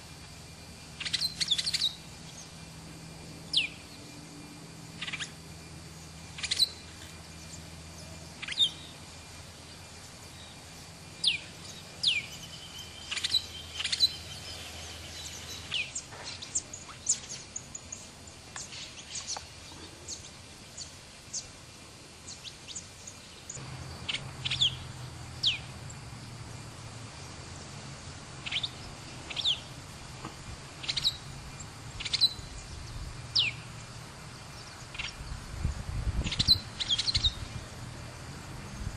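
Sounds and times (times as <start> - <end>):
faint background noise: 0.0 - 38.9
faint bird chirps: 0.9 - 2.6, 4.9 - 21.5, 22.3 - 25.7, 28.4 - 29.8, 30.8 - 33.7, 36.2 - 37.6
birds calling with descending notes: 1.0 - 2.6, 3.5 - 4.1, 6.0 - 9.0, 11.2 - 21.5, 22.3 - 26.0, 28.4 - 29.8, 30.8 - 33.8, 36.2 - 37.6.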